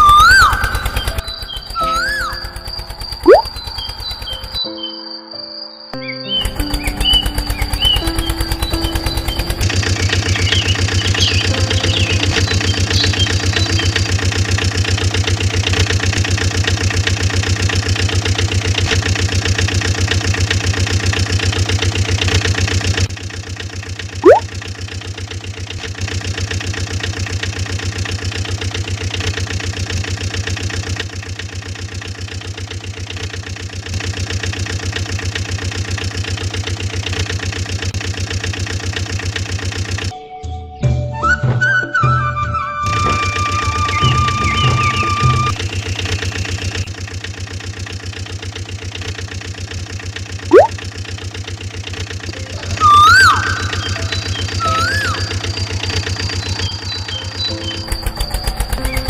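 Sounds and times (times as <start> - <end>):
upward sweeping tone: 0.0 - 3.7, 24.2 - 24.4, 50.5 - 50.7
small engine idling: 0.0 - 4.9, 6.0 - 40.2, 42.8 - 59.0.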